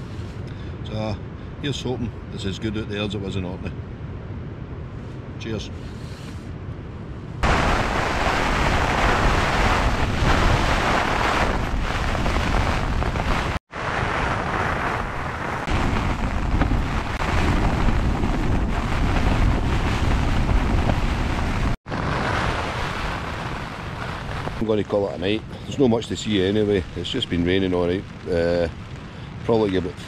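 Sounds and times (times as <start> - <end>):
wind and rain on tent: 0.0 - 30.0.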